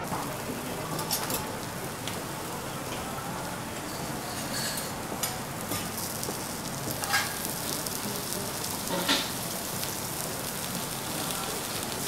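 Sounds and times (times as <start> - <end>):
food sizzling on a griddle: 0.0 - 12.0.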